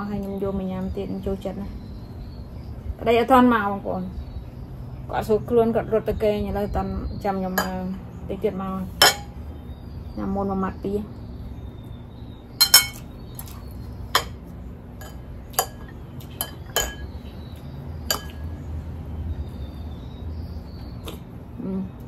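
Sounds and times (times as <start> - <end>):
utensils clinking on ceramic: 12.6 - 13.5, 15.0 - 17.1, 18.1 - 18.4.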